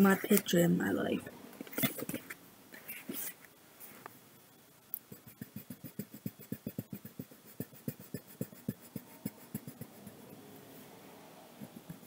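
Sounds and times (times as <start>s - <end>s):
coloring strokes on paper: 5.1s - 11.0s.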